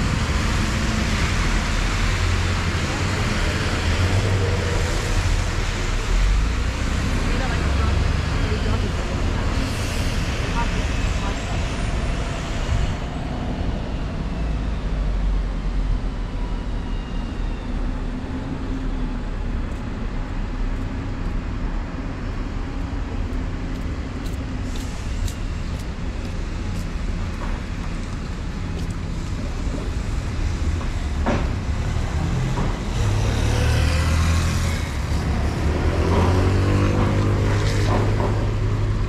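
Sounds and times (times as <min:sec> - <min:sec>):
low rumble of traffic engines: 0:00.0 - 0:39.0
steady engine drone: 0:00.0 - 0:39.0.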